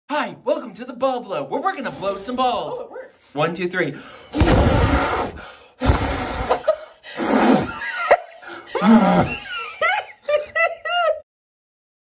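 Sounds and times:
people blowing through lips: 4.4s - 8.0s, 8.8s - 9.5s
people laughing: 7.7s - 11.2s.

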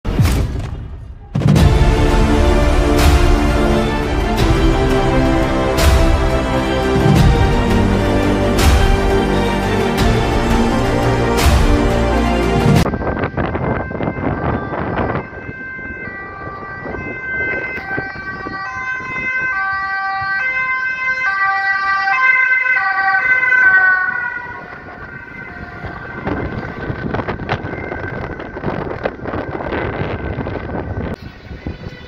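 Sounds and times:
traffic: 1.2s - 32.0s
ambulance two-tone siren: 1.6s - 32.0s
wind on microphone: 12.8s - 20.8s, 23.6s - 32.0s.

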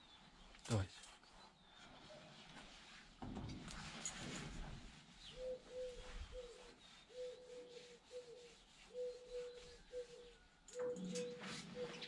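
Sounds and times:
soft rustle: 0.8s - 12.0s
dove cooing: 5.4s - 12.0s.

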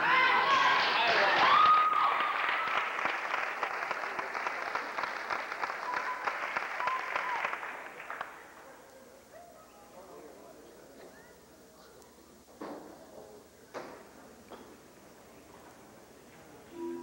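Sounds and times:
short cheers: 0.0s - 2.9s, 5.8s - 7.6s
audience applauding: 0.6s - 8.8s.

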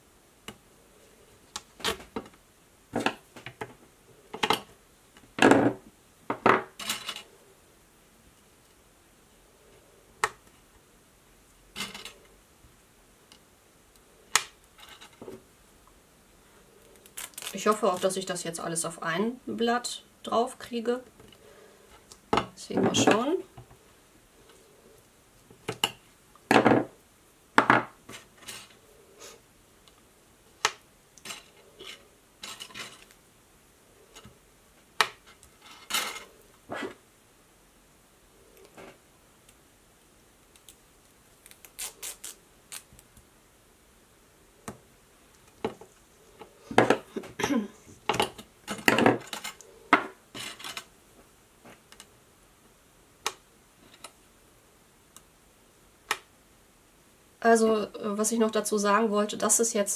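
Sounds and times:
tape pulled from roll: 17.0s - 17.6s, 41.4s - 43.0s.

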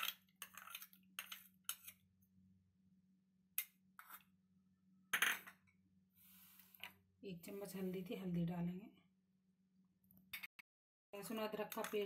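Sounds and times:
soft scrape: 6.2s - 6.8s.

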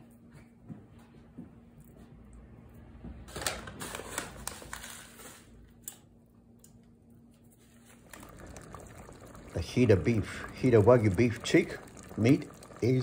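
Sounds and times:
faint steady hum: 5.6s - 13.0s.

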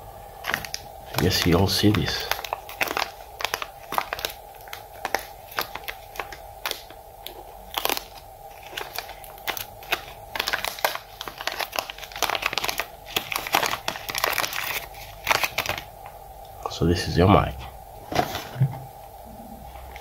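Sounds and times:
plastic bag crinkling: 0.4s - 15.9s.

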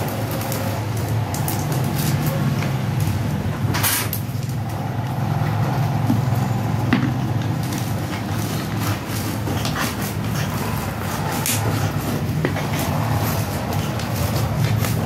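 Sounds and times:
plastic wrappers crinkling: 4.2s - 15.0s.

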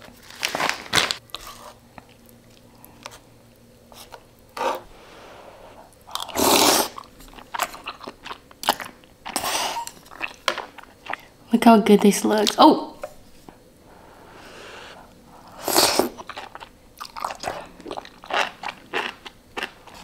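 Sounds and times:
slurping noodles: 4.6s - 7.1s, 14.0s - 16.6s
wet chewing: 5.9s - 11.3s, 15.7s - 20.0s.

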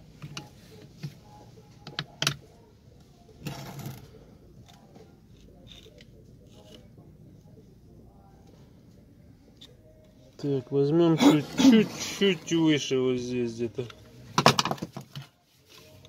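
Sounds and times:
screwdriver scraping metal: 5.4s - 6.8s.

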